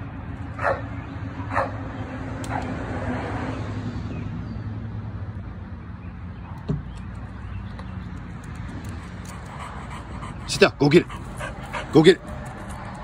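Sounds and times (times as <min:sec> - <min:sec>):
vehicle passing: 0:00.0 - 0:05.4, 0:07.0 - 0:13.0
road traffic hum: 0:00.0 - 0:13.0
dog barking: 0:00.6 - 0:00.9, 0:01.5 - 0:01.8.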